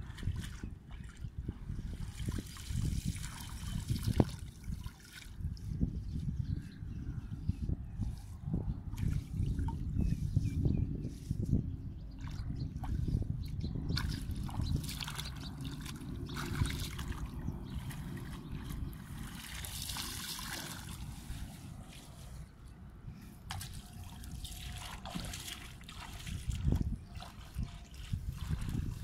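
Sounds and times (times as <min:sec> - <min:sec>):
water trickling from a pipe: 0:00.0 - 0:06.0, 0:12.2 - 0:22.0, 0:23.4 - 0:29.0
splashes in water: 0:14.0 - 0:21.2, 0:23.5 - 0:29.0.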